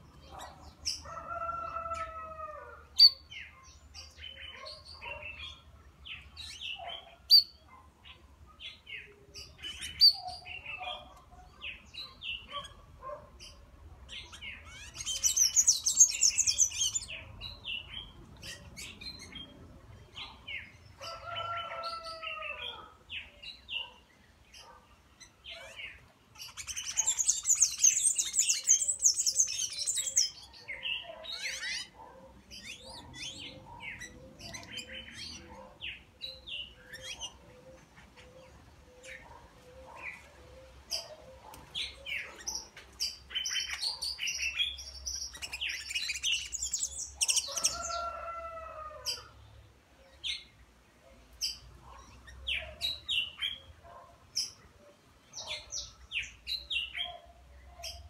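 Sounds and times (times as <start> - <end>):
songbirds chirping: 0.0 - 58.0
rapid high-pitched bird twittering: 14.7 - 17.1, 26.4 - 30.4, 43.5 - 47.8.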